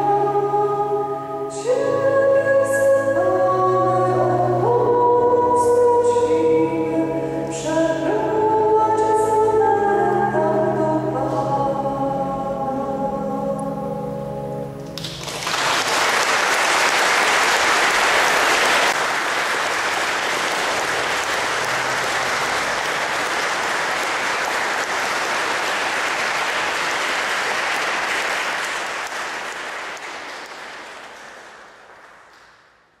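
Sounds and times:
audience applauding: 14.9 - 32.8.

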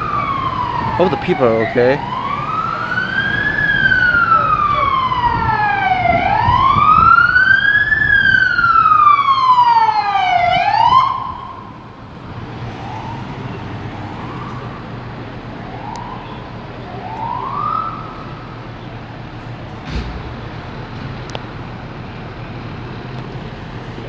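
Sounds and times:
emergency siren wailing: 0.0 - 18.9.

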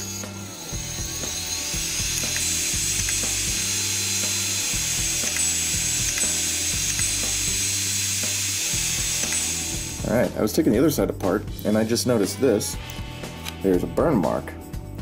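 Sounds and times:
steady high whine: 0.0 - 10.4
low hum switching on and off: 0.8 - 10.2
hard drive head ticking: 1.2 - 10.0.

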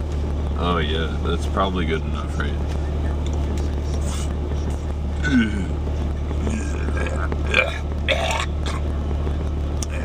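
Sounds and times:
steady low hum: 0.0 - 10.0
man burping: 5.2 - 5.8, 6.4 - 8.8.

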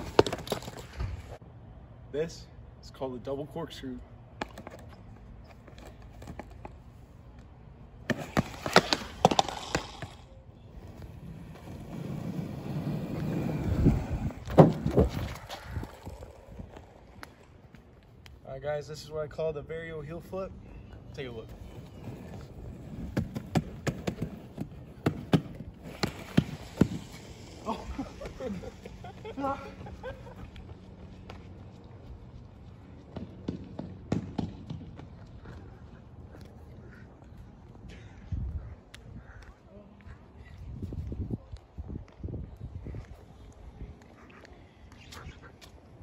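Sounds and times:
skateboard clattering on asphalt: 0.0 - 1.3, 8.0 - 17.8, 21.5 - 28.7.

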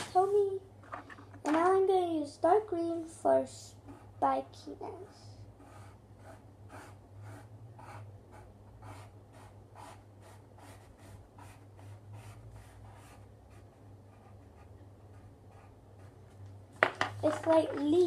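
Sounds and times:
coloured pencil scratching on paper: 3.7 - 16.2.

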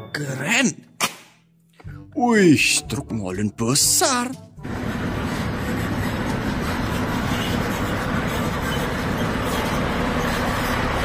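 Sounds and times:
diesel engine running: 4.6 - 11.0.

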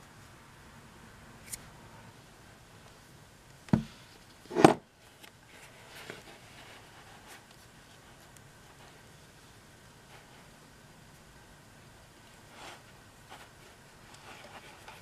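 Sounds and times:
thump: 3.7 - 4.8
cord rustling: 12.2 - 15.0.

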